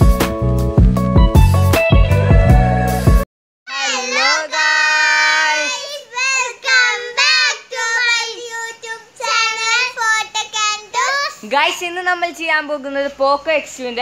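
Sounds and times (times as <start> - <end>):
children singing together: 3.7 - 9.6.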